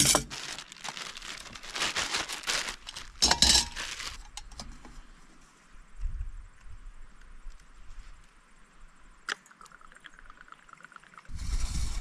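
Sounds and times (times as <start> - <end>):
plastic bag crinkling: 0.0 - 4.6
aluminium cookware clinking and scraping: 3.2 - 3.8.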